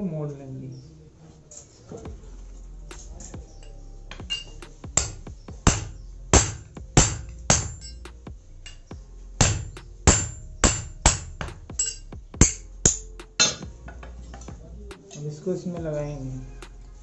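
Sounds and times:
hammer striking steel on anvil: 4.1 - 13.7.

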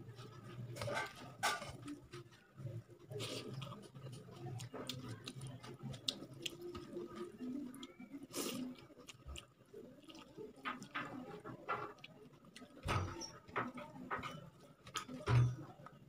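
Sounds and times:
chewing and mouth smacks: 3.1 - 11.3.

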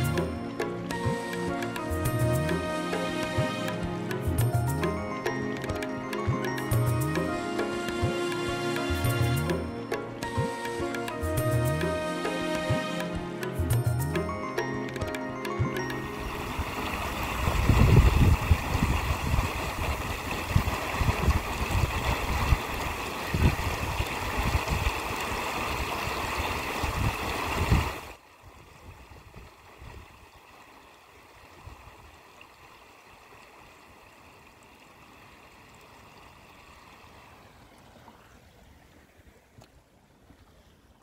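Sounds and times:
water rushing loudly: 15.8 - 28.2.

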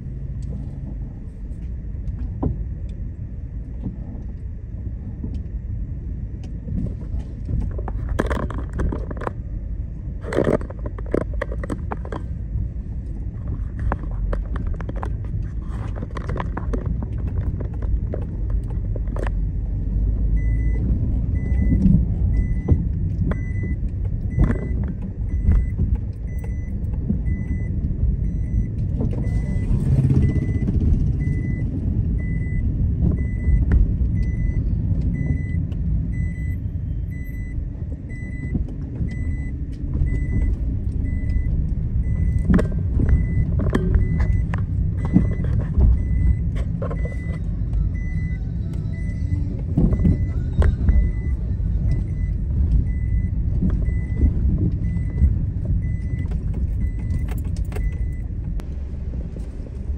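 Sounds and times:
car road and engine rumble: 0.0 - 59.9
high repeating beep: 26.3 - 32.6, 47.0 - 55.2.

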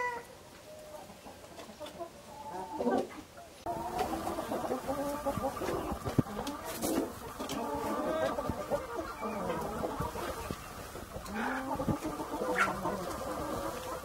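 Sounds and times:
hens clucking: 0.0 - 14.0.

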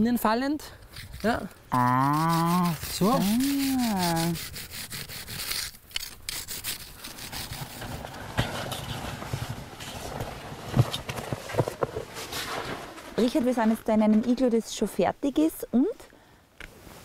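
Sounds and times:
person's drawn-out voice: 1.7 - 4.4
snow saw rasping through snow: 1.8 - 9.3.

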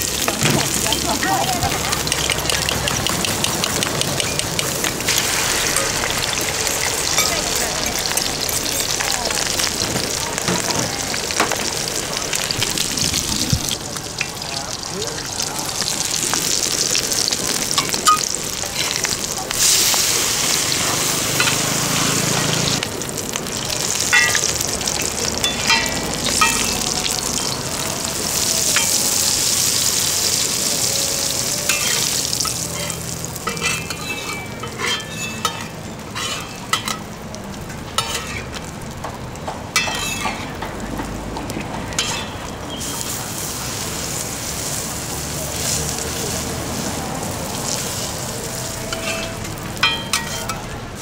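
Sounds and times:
egg frying in hot oil: 0.0 - 51.0
spatula scraping and clinking pan: 31.7 - 37.0, 38.0 - 38.5, 39.8 - 40.5, 42.0 - 42.4, 48.9 - 50.6.

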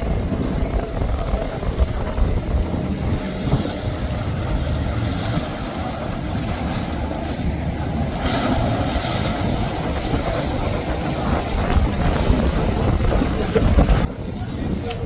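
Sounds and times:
motorboat engine drone: 0.0 - 15.0
rush of boat wake: 0.0 - 15.0
wind rumbling on microphone: 0.0 - 15.0.

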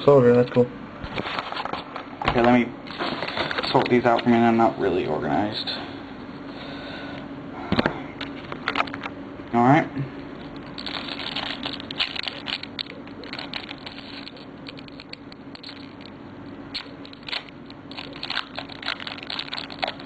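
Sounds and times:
foil wrapper crinkling: 10.4 - 20.0
cards being handled: 10.5 - 16.1, 16.8 - 20.0.

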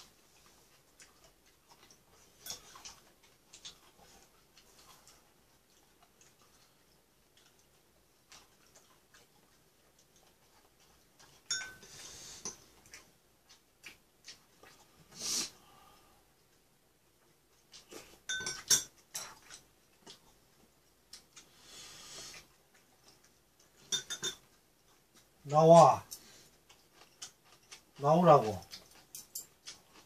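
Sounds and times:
chopsticks clinking on ceramic bowls: 11.4 - 11.9, 18.3 - 19.6, 23.8 - 24.5.

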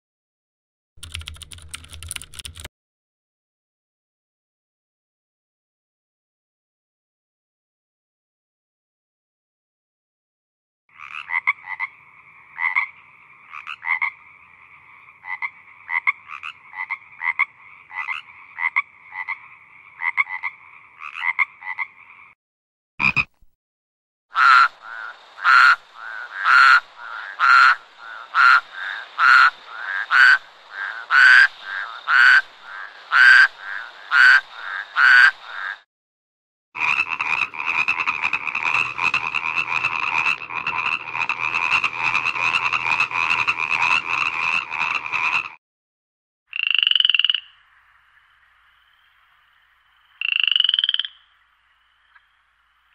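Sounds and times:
dense frog chorus: 10.9 - 22.4, 24.4 - 35.8, 36.8 - 45.6, 46.5 - 52.9
frogs croaking: 10.9 - 22.4, 23.0 - 23.4, 24.3 - 35.8, 36.8 - 45.6, 46.5 - 52.9.

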